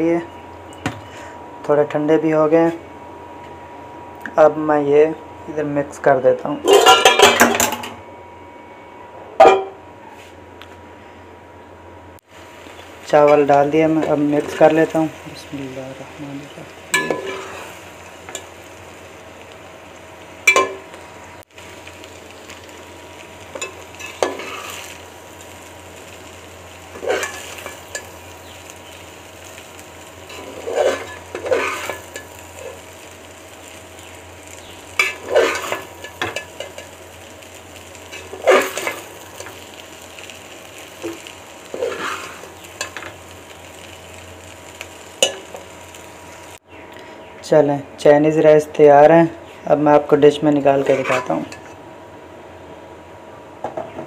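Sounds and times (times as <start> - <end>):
low hiss from pot: 12.3 - 46.6
utensil scraping metal pot: 30.3 - 32.8, 35.0 - 36.9, 50.8 - 51.8.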